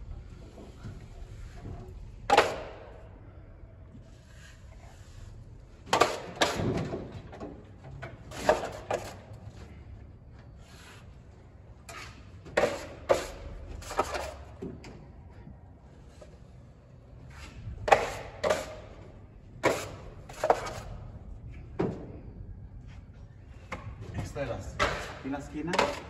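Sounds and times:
trowel scraping and knocking: 0:11.9 - 0:14.4, 0:19.6 - 0:21.0.

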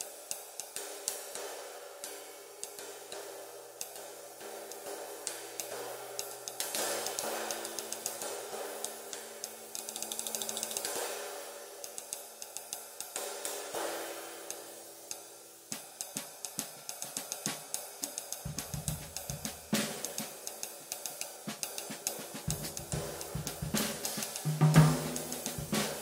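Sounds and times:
ride cymbal sizzling wash: 0:00.0 - 0:26.0
snare drum: 0:06.6 - 0:08.3, 0:15.7 - 0:26.0
bass drum: 0:18.5 - 0:20.2, 0:21.5 - 0:26.0.

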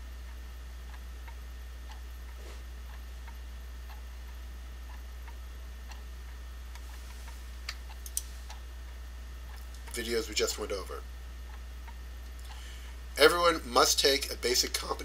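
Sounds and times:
faint ticking: 0:00.0 - 0:15.0
low hum: 0:00.0 - 0:15.0
sharp clicks: 0:07.6 - 0:08.6.

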